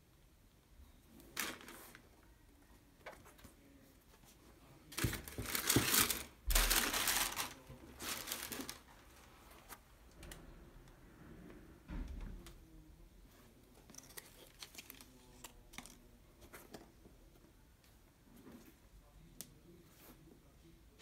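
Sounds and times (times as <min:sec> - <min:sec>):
tissue paper rustling: 0:05.0 - 0:09.8.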